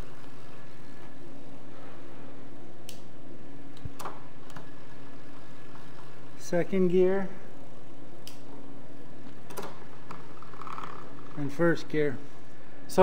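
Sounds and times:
bicycle chain running: 0:10.1 - 0:11.6.

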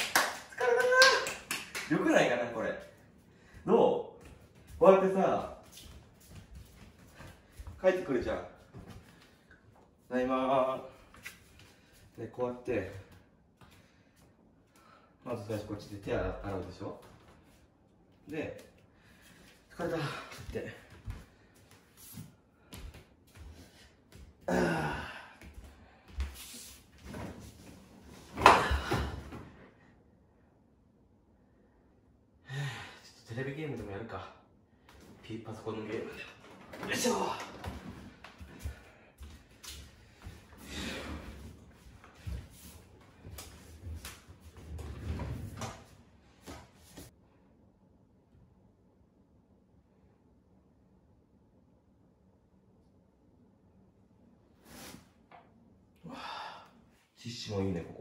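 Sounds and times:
man's footsteps: 0:03.1 - 0:10.0, 0:20.3 - 0:24.5, 0:25.4 - 0:27.9, 0:36.8 - 0:47.1
long vocal sigh: 0:24.5 - 0:25.5, 0:56.0 - 0:56.8.

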